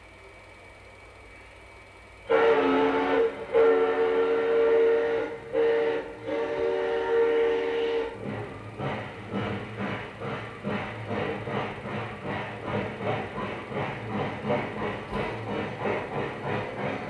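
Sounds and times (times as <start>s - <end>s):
train whistle blasts: 2.2s - 9.6s.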